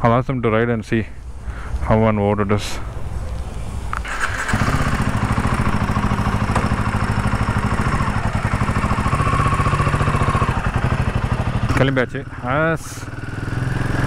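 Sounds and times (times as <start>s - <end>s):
motorcycle engine idling: 4.1s - 14.0s.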